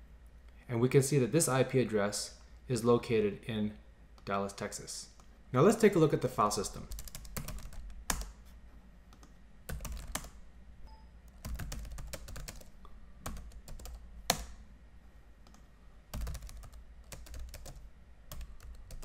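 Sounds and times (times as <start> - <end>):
typing on computer keyboard: 6.9 - 8.4, 9.2 - 10.4, 11.3 - 14.5, 15.5 - 19.0.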